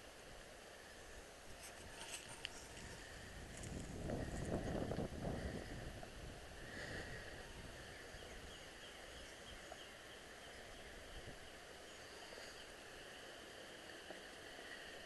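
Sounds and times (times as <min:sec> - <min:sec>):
faint outdoor hiss: 0:00.0 - 0:15.0
soft footsteps on trail: 0:01.4 - 0:07.2
distant bird chirps: 0:06.8 - 0:13.4.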